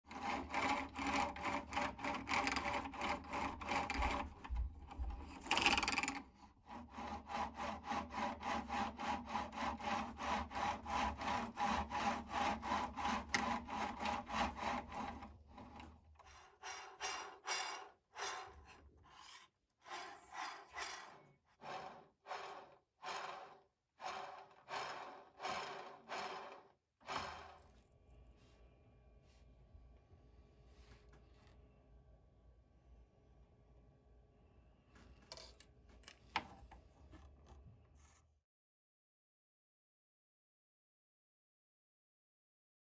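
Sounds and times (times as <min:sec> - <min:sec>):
arrow shaft rasping on sandpaper: 0:18.3 - 0:21.2.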